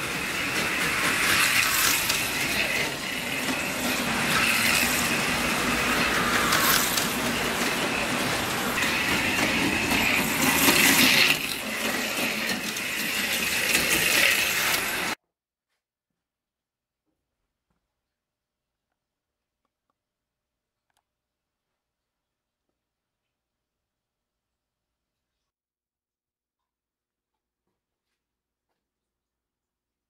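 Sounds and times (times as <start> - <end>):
slot car motors whining: 0.0 - 15.2
slot car wheels buzzing: 0.0 - 15.2.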